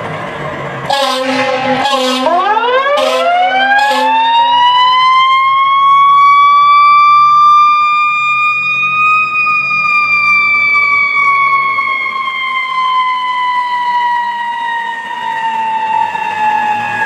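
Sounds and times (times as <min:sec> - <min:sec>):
fire engine siren: 0:00.8 - 0:17.0
air horn blast: 0:00.9 - 0:04.9.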